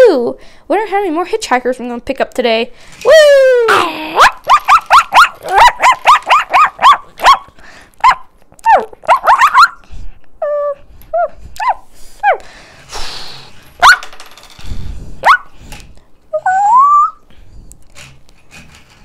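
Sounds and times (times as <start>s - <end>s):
person imitating puppy yelps: 3.1s - 9.8s, 10.4s - 12.4s, 15.2s - 15.5s, 16.3s - 17.3s.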